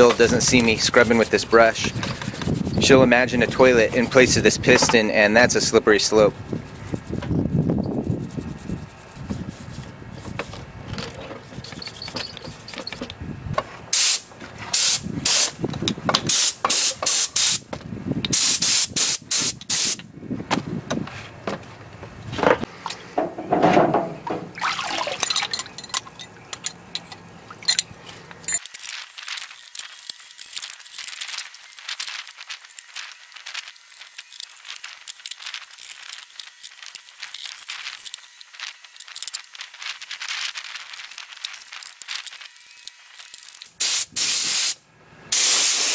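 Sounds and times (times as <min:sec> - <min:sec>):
hand brush scrubbing metal: 0:00.0 - 0:10.6
fine scratching: 0:00.0 - 0:13.0, 0:28.9 - 0:43.2
hands splashing in water: 0:24.5 - 0:25.6.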